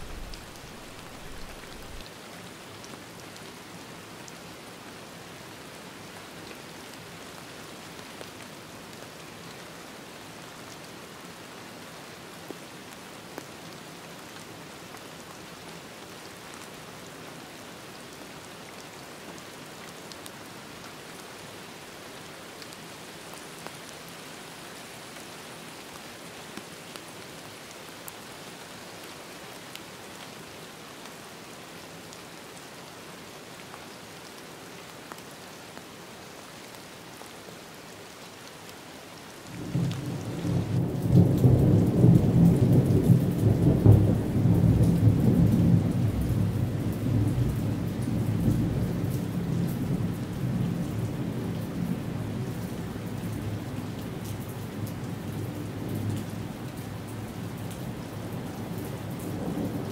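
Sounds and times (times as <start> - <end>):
rolling thunder: 0.0 - 2.0
rain drop ticks: 0.0 - 2.1
steady rain: 0.0 - 59.9.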